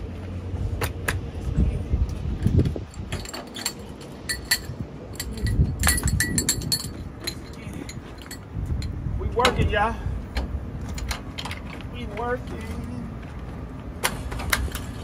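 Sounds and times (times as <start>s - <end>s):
metal hose couplings clinking: 2.9s - 9.6s, 10.8s - 13.0s.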